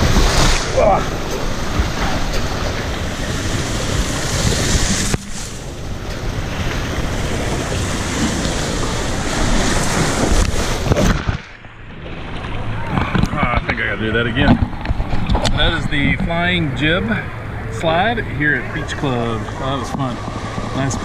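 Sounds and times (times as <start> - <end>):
rider splashing into pool: 0.0 - 13.5
rushing water: 0.0 - 21.0
wind on camera: 0.0 - 21.0.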